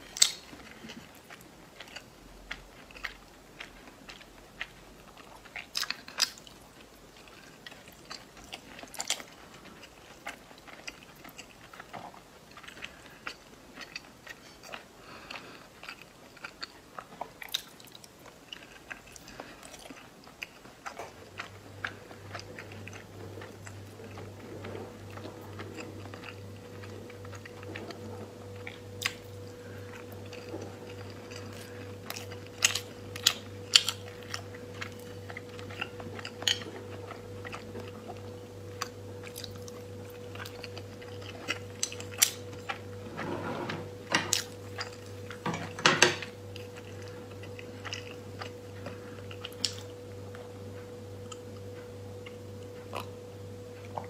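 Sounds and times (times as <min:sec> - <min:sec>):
steady low hum: 0:00.0 - 0:54.0
chewing and wet mouth smacks: 0:00.2 - 0:24.2.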